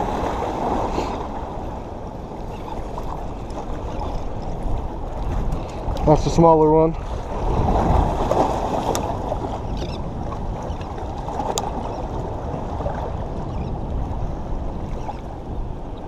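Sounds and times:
water sloshing against rocks: 0:02.4 - 0:13.0.

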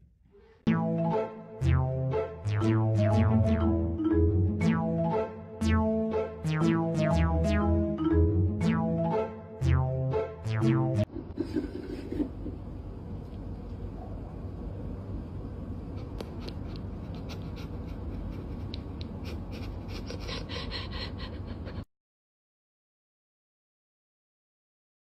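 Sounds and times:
music: 0:00.9 - 0:11.1.

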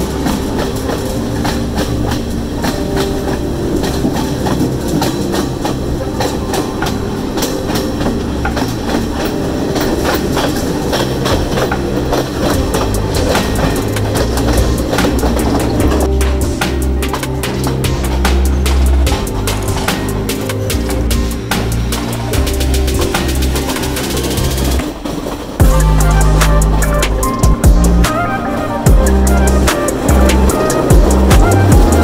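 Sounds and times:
low train rumble: 0:00.0 - 0:32.0
train wheels clattering over rails: 0:00.0 - 0:32.0.

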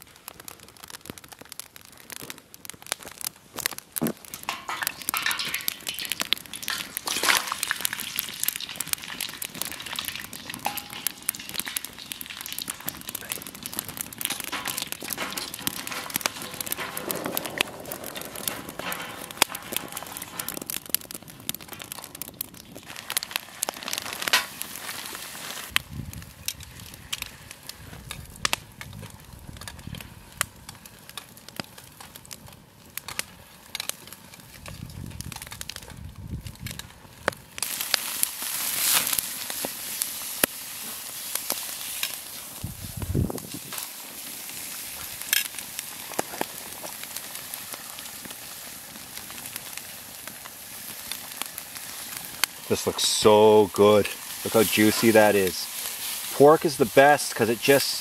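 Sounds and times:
wood fire crackling: 0:00.0 - 0:58.0
fries sizzling in oil: 0:03.0 - 0:26.0, 0:37.5 - 0:58.0.

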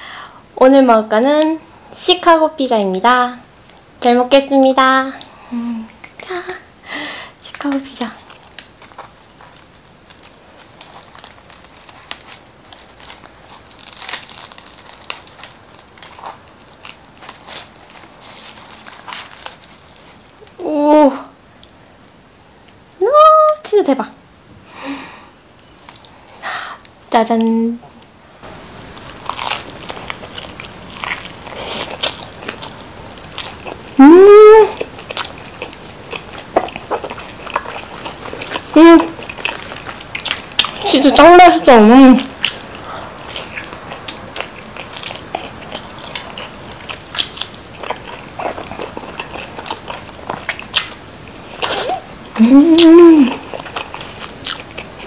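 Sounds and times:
pizza crust crackling: 0:06.0 - 0:20.9, 0:28.4 - 0:55.0.

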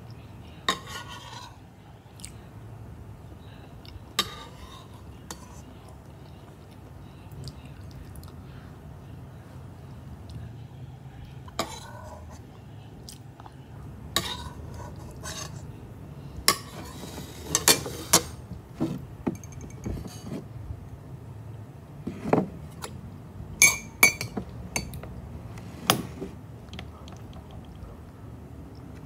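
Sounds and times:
metal spoon clinking on ceramic: 0:19.3 - 0:19.9, 0:23.6 - 0:25.0.

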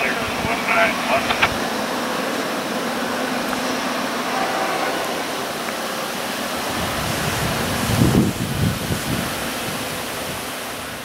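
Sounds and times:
steady rushing noise: 0:00.0 - 0:11.0
wind buffeting microphone: 0:05.3 - 0:11.0.

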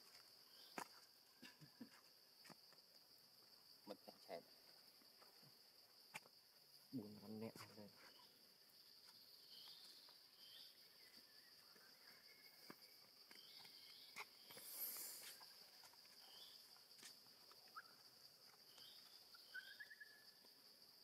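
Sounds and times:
insect drone: 0:00.0 - 0:21.0.

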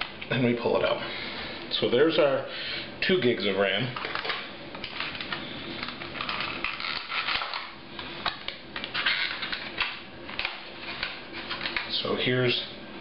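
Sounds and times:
plastic package crinkling: 0:04.0 - 0:12.0.

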